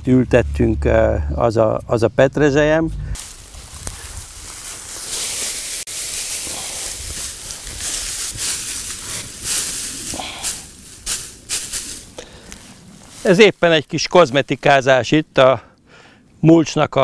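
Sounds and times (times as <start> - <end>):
straw rustling by hand: 3.2 - 15.0.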